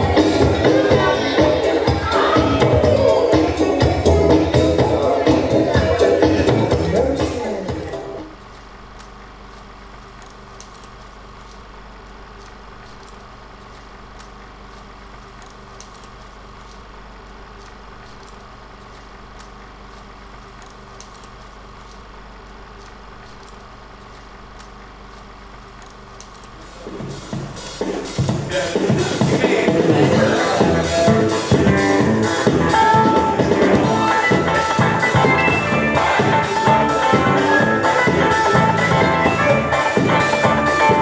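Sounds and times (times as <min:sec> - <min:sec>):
dance music: 0:00.0 - 0:08.4, 0:26.7 - 0:41.0
mechanical room hum: 0:00.0 - 0:41.0
faint clicks: 0:22.8 - 0:26.6.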